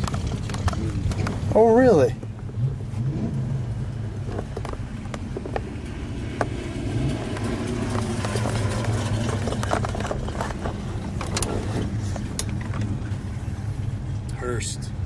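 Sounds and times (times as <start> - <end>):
sharp clicks and knocks: 0.0 - 1.5, 4.2 - 13.2
car engine running: 0.0 - 15.0.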